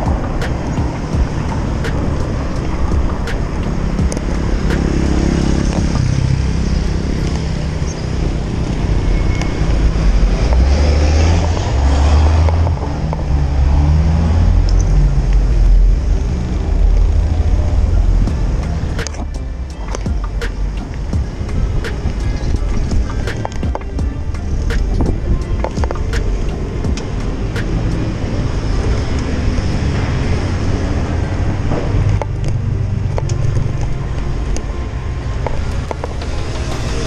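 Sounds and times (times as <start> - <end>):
street traffic: 0.0 - 37.0
wind rumbling on microphone: 0.0 - 37.0.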